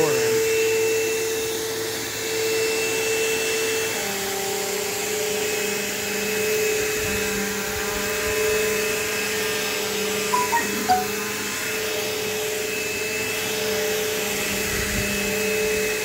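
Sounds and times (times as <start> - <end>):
vacuum cleaner running: 0.0 - 9.9, 11.6 - 16.0.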